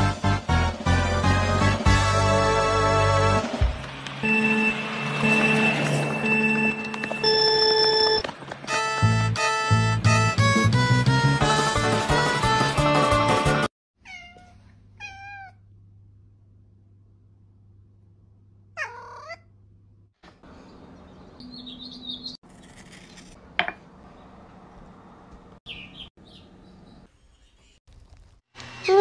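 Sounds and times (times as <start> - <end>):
background music: 0.0 - 7.6, 8.7 - 13.7
cat meowing: 14.0 - 15.6, 18.8 - 19.5.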